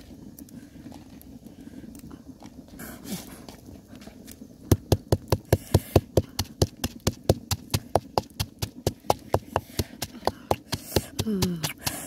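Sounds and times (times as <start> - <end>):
wooden pestle pounding in mortar: 4.7 - 12.0.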